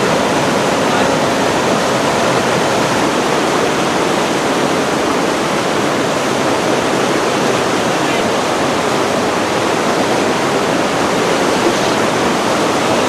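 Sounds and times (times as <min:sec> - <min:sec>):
whitewater rushing: 0:00.0 - 0:13.0.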